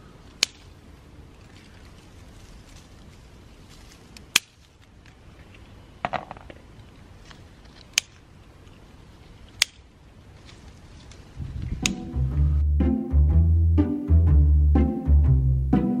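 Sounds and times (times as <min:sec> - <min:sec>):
rustling among branches: 0:00.0 - 0:05.9, 0:06.6 - 0:11.8.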